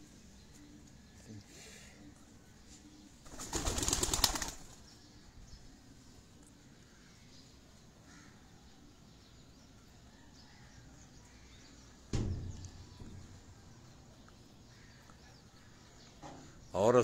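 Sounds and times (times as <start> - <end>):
faint rooftop background: 0.0 - 17.0
soft bird calls: 0.0 - 17.0
single thump: 12.1 - 13.4.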